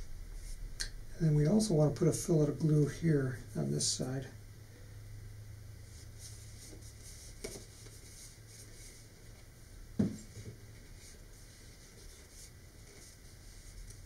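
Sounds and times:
knock on cardboard: 10.0 - 10.3.

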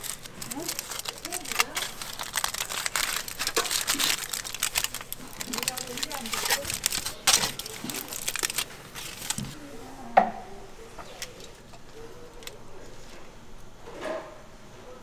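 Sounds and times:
aluminium foil crinkling: 0.0 - 9.6, 11.0 - 13.3.

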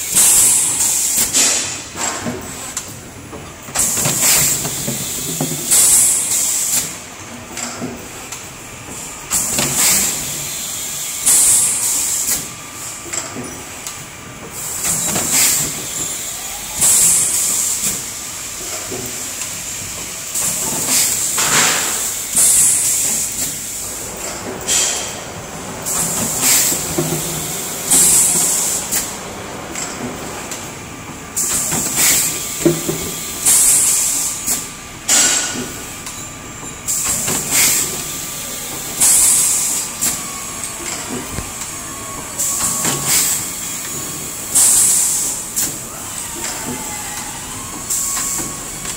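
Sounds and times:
compressed air hiss bursts: 25.8 - 29.1.

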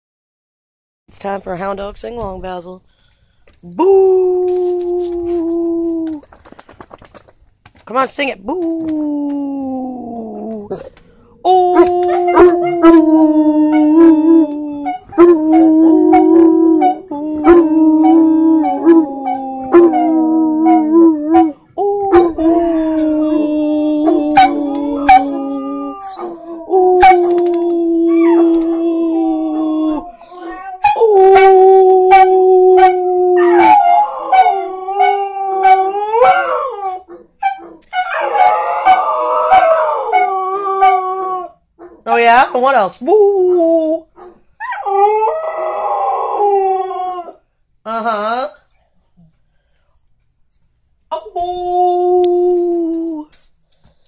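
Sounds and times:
dogs howling: 8.5 - 42.4, 44.6 - 47.4.

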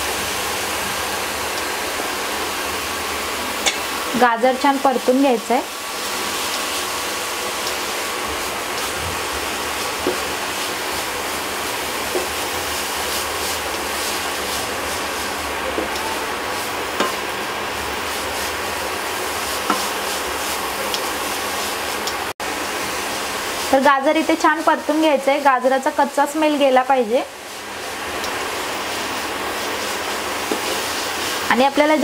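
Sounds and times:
carrots sizzling in a pan: 0.0 - 32.0
wooden spatula scraping a pan: 12.0 - 22.1, 27.3 - 32.0.

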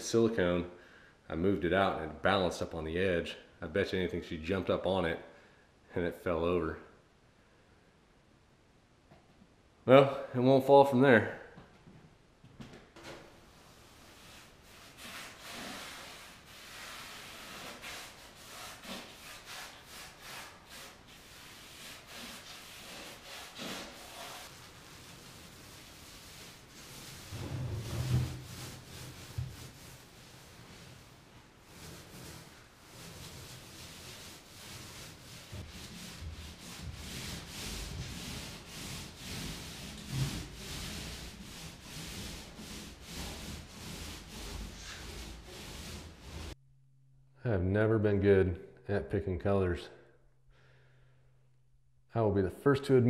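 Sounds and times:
paint roller swishing on wall: 13.0 - 46.6
hand tool rubbing against drywall: 13.5 - 46.6.

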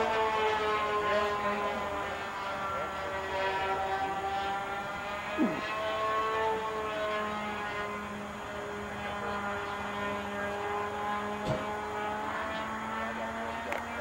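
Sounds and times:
model airplane propeller droning: 0.0 - 14.0
brief knock: 11.4 - 11.7.

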